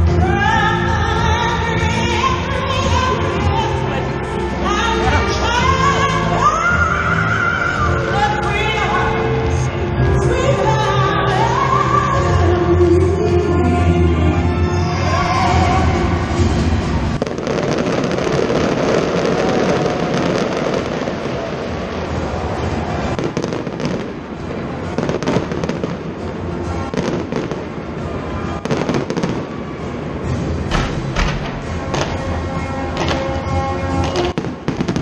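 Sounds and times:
music playing: 0:00.0 - 0:35.0
fireworks bursting and crackling: 0:16.4 - 0:32.4, 0:33.0 - 0:35.0.

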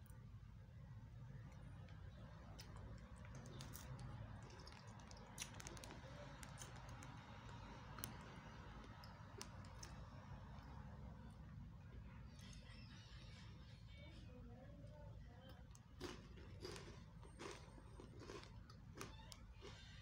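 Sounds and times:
low steady hum: 0:00.0 - 0:20.0
biscuit crunching clicks: 0:01.5 - 0:10.8, 0:15.5 - 0:20.0.

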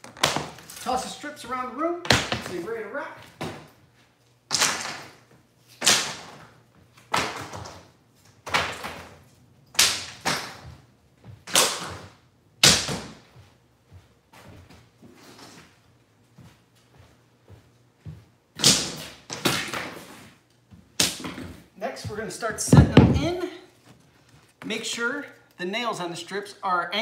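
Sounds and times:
wooden strips clattering on floor: 0:22.6 - 0:24.7.

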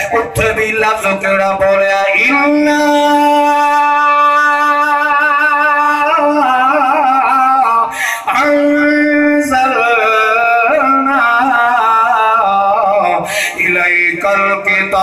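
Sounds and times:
man chanting melodic recitation: 0:00.0 - 0:15.0.

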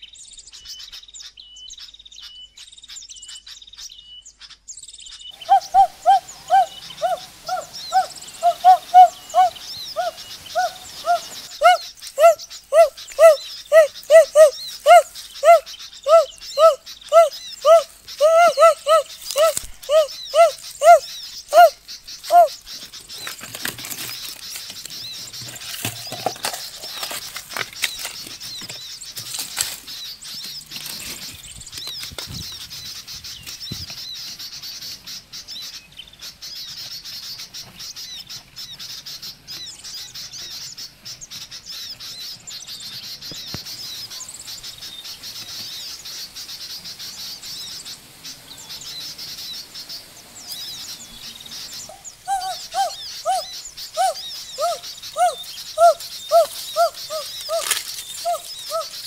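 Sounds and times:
small birds chirping: 0:00.0 - 0:59.0
high arching animal cries: 0:05.4 - 0:22.7, 0:51.8 - 0:59.0.

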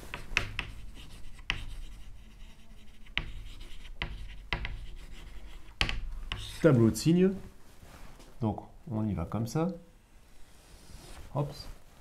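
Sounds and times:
chalk scratching on chalkboard: 0:00.0 - 0:07.0.

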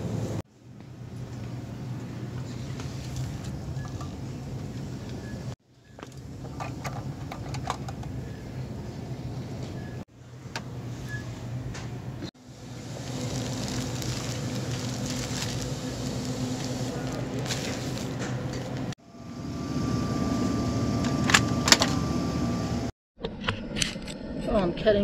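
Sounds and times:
steady low hum: 0:08.0 - 0:22.9
shopping cart rolling: 0:12.7 - 0:18.9.

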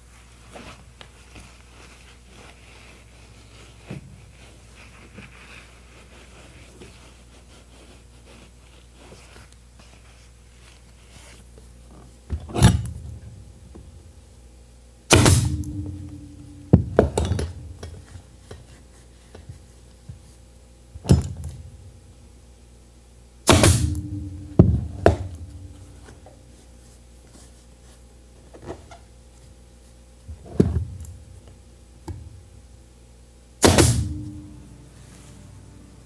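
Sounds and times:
pneumatic staple gun firing: 0:15.1 - 0:16.0, 0:23.5 - 0:24.2, 0:33.6 - 0:34.3
air hiss: 0:15.1 - 0:18.4, 0:23.4 - 0:26.3, 0:33.6 - 0:36.0.

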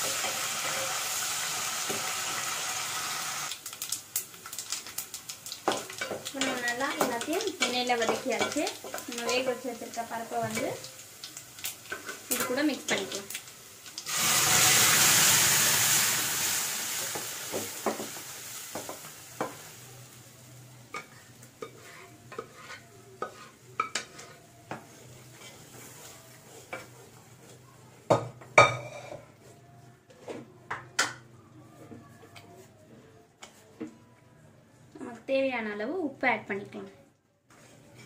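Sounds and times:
hot oil sizzling: 0:00.0 - 0:24.1
spatula scraping and stirring pot: 0:05.7 - 0:09.7, 0:21.0 - 0:30.5, 0:37.5 - 0:38.0.

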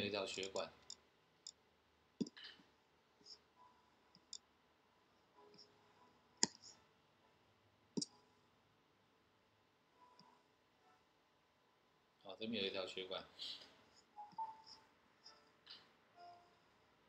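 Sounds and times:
computer mouse clicks: 0:06.4 - 0:06.7.

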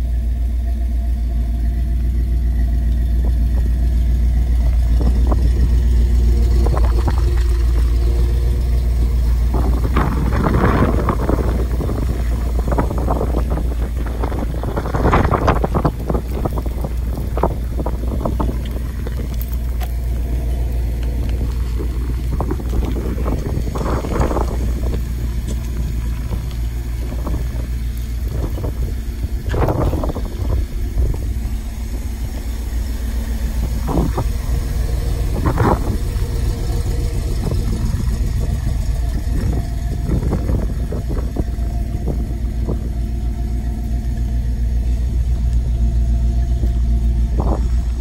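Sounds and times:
engine idling with deep rumble: 0:00.0 - 0:48.0
wind on microphone: 0:04.6 - 0:31.6, 0:33.6 - 0:43.3, 0:47.2 - 0:48.0.

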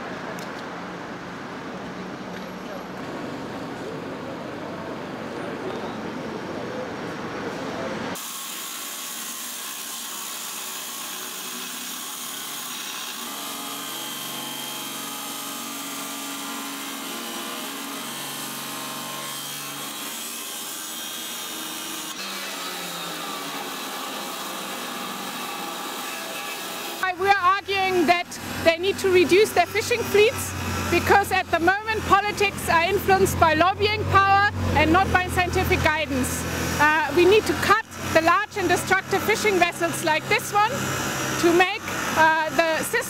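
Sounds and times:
street traffic rumble: 0:00.0 - 0:08.2, 0:27.0 - 0:43.0
power tool grinding metal: 0:08.2 - 0:43.0.

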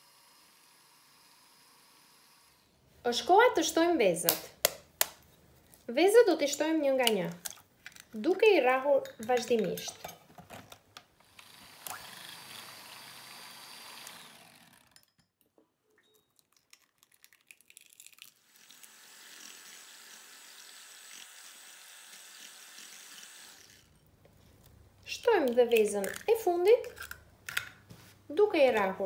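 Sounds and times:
electric hand mixer beating: 0:11.3 - 0:15.0, 0:18.4 - 0:23.9.

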